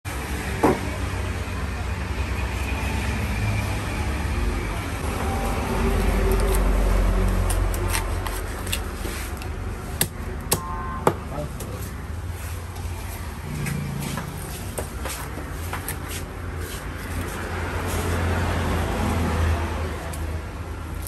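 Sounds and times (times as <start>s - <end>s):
road traffic rumble: 0.0s - 21.0s
vehicle passing: 11.2s - 20.9s.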